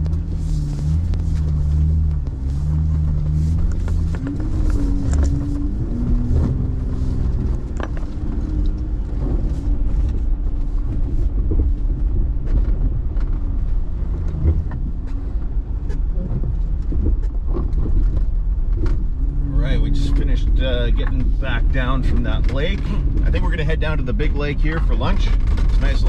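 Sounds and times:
off-road vehicle engine running: 0.0s - 26.0s
knocks and rattles: 1.0s - 10.2s.

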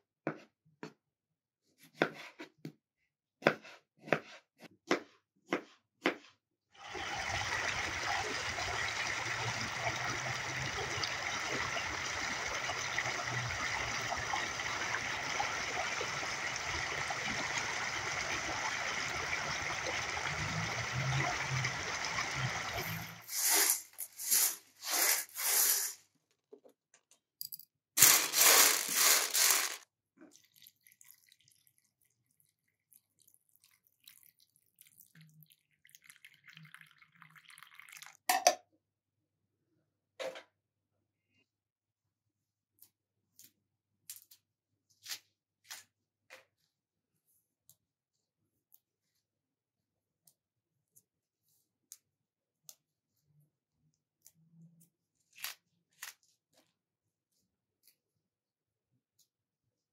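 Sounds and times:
chickpeas clattering on metal tray: 28.0s - 29.8s.

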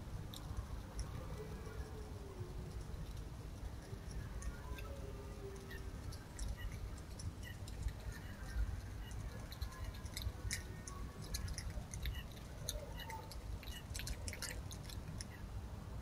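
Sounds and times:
animal wet chewing: 0.0s - 15.5s.

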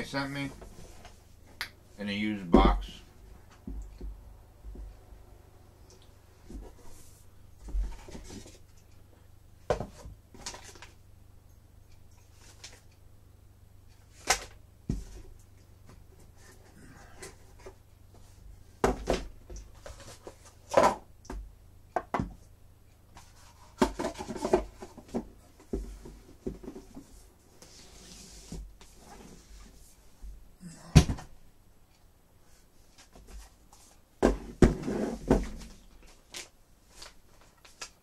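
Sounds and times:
cardboard boxes knocking and scraping: 9.7s - 10.2s, 23.2s - 27.1s, 34.2s - 35.8s.

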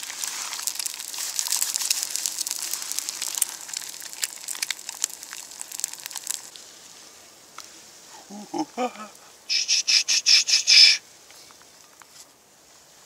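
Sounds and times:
egg sizzling in oil: 0.0s - 6.5s.

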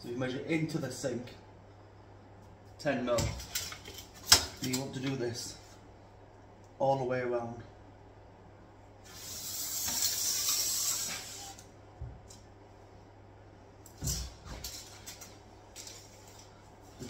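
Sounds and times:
tape measure scraping worktop: 9.0s - 11.6s.

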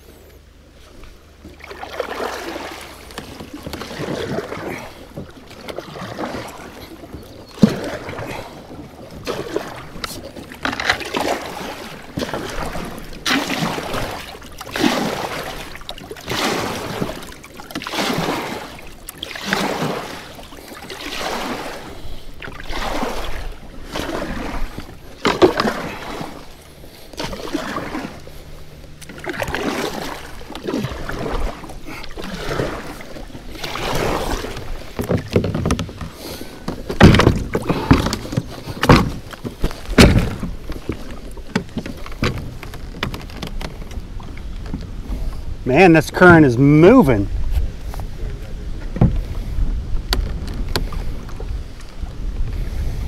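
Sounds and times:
paddle splashing through water: 0.6s - 53.0s
sharp knocks: 36.8s - 41.0s.

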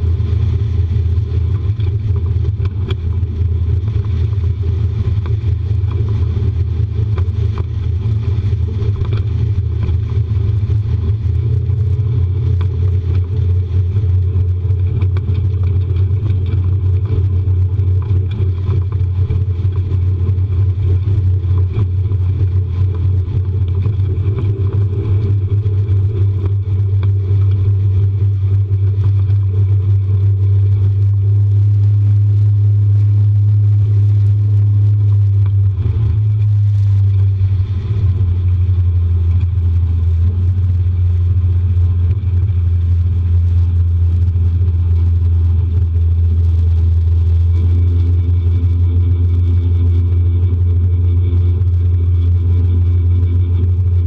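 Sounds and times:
outboard motor droning: 0.0s - 54.0s.

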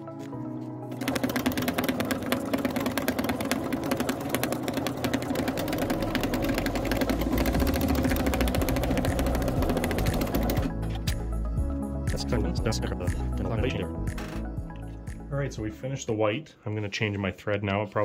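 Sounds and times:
sewing machine stitching: 0.9s - 10.8s
low motor hum: 1.0s - 10.8s.

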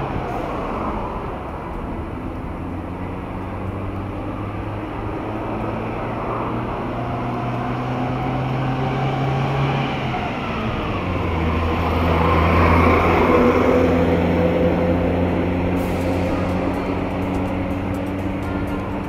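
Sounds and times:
car engine: 0.0s - 19.0s
road noise: 0.0s - 19.0s.

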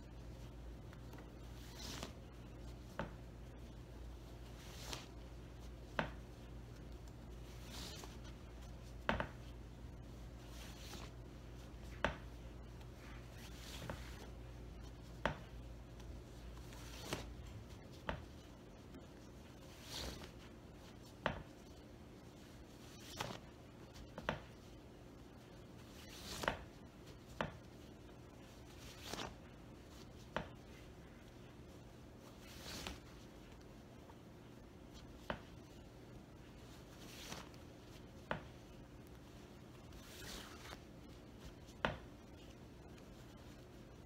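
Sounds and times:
faint low hum: 0.0s - 44.0s
fabric swishing and rustling: 0.1s - 24.7s, 25.4s - 31.5s, 32.2s - 34.2s, 34.8s - 38.7s, 39.3s - 44.0s.

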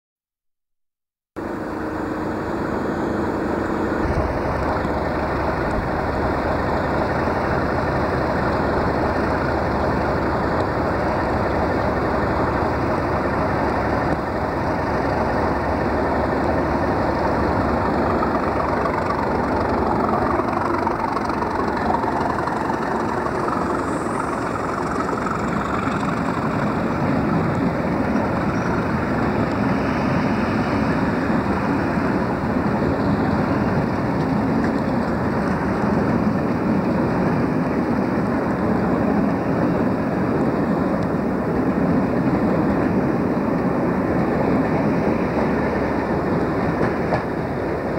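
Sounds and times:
diesel locomotive engine running: 1.4s - 47.9s
coaches rolling past: 4.4s - 37.7s.

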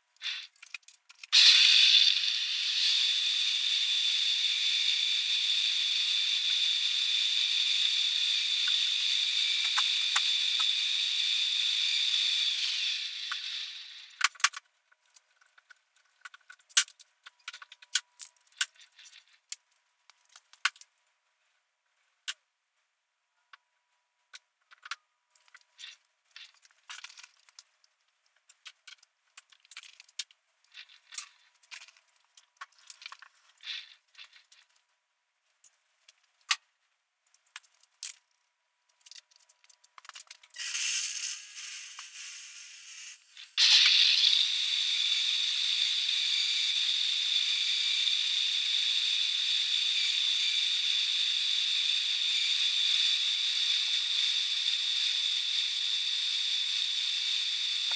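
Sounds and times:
lathe running with high whine: 1.4s - 14.1s.

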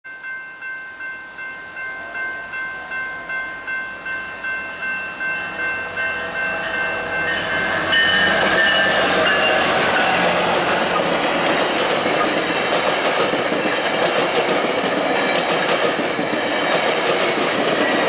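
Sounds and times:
railway crossing bell ringing: 0.1s - 13.0s, 14.9s - 18.0s
diesel locomotive passing: 1.4s - 18.0s.

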